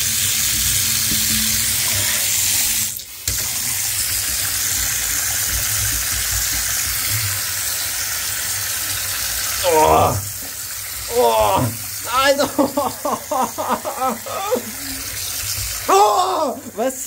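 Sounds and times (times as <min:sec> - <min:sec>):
water splashing into a bathtub: 0:00.0 - 0:16.8
hand scrubbing a tub: 0:09.6 - 0:16.6.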